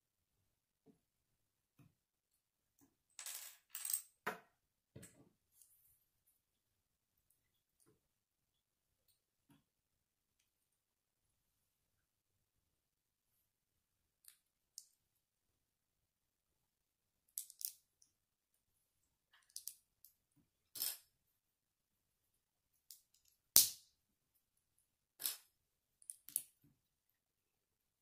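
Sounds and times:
plastic bricks clicking together: 26.0s - 26.5s.

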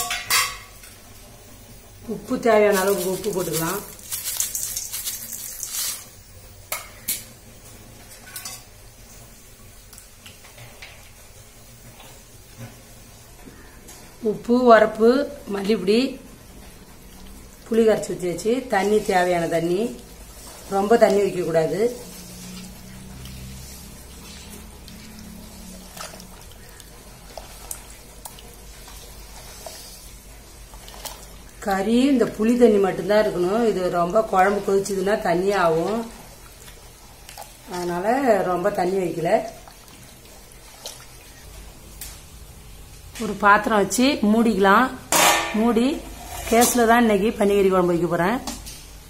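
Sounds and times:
liquid and meat sloshing: 2.7s - 6.1s, 22.1s - 29.8s
salt pouring into metal pot: 2.8s - 6.1s.

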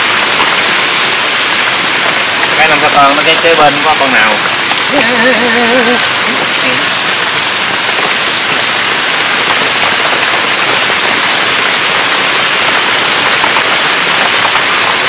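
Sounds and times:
steady rain falling: 0.0s - 15.0s.

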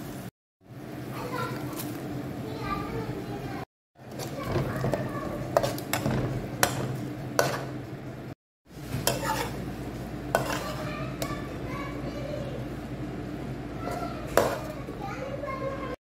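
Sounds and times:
light sizzle: 0.0s - 15.4s
metal spatula scraping a wok: 8.8s - 9.7s, 10.3s - 11.2s.

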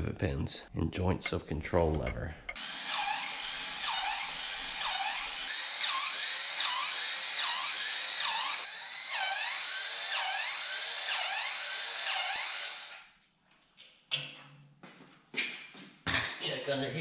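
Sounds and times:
grease gun motor whining: 2.5s - 13.0s.

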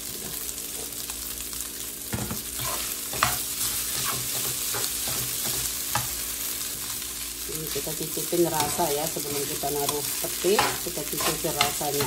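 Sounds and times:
rice sizzling in hot oil: 0.0s - 12.0s
metal spatula scraping a wok: 2.6s - 6.1s, 8.6s - 12.0s.

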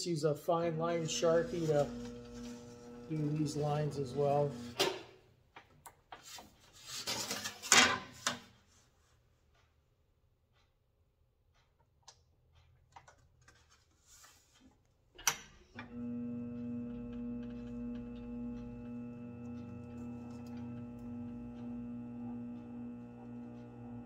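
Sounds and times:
electric motor humming: 0.8s - 4.9s, 15.8s - 24.0s.

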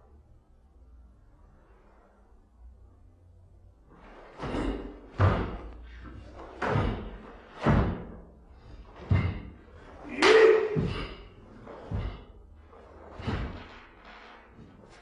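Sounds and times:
bare feet striking wooden floor: 4.4s - 8.2s, 8.9s - 12.3s, 13.0s - 15.0s.

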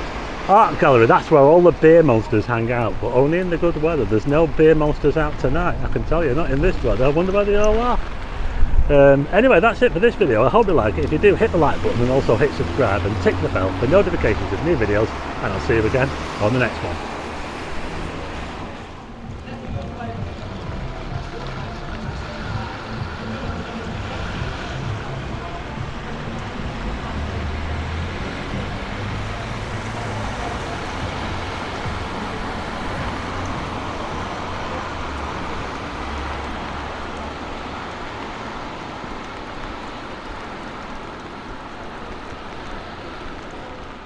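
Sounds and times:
steady rain: 0.0s - 44.0s
traffic hiss on wet road: 0.0s - 44.0s
wind buffeting microphone: 4.0s - 12.1s.

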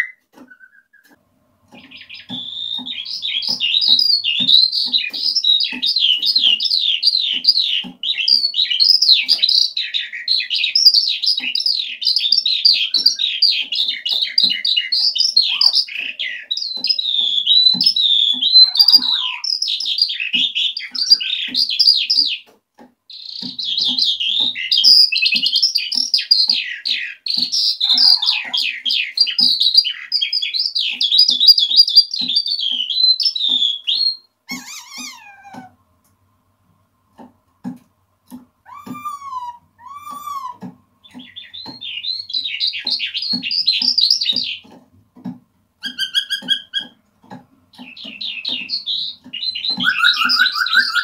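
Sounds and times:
skylark warbling song: 1.7s - 22.5s, 23.1s - 34.3s, 38.8s - 44.7s, 47.7s - 51.0s
bird short calls: 18.4s - 19.5s, 27.8s - 28.8s, 34.5s - 35.7s, 38.7s - 40.6s.

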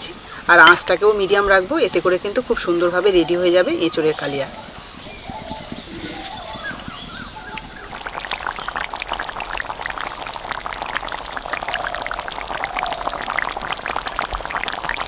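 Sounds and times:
curry bubbling in a pan: 6.0s - 15.0s.

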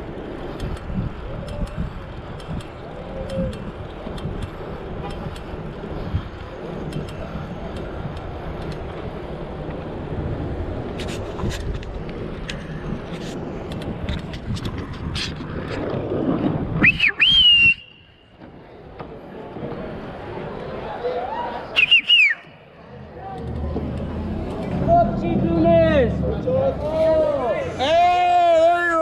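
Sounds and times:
wind and road noise: 0.0s - 29.0s
loud swooping whistle: 16.8s - 18.4s, 21.7s - 22.6s
clicks: 23.3s - 24.8s.

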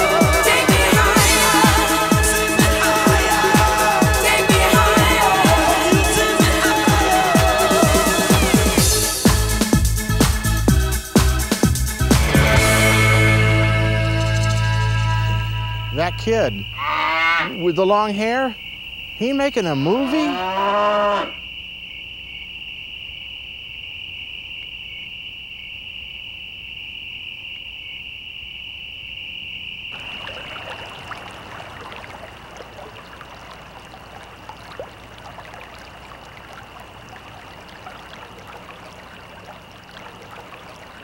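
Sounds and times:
crackling hiss: 0.0s - 11.4s, 20.7s - 41.0s.

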